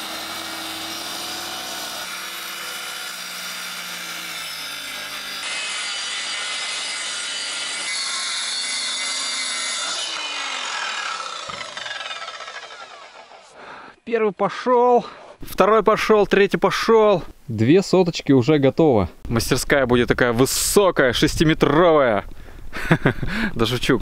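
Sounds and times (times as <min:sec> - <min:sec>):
circular saw cutting wood: 0:00.0 - 0:13.9.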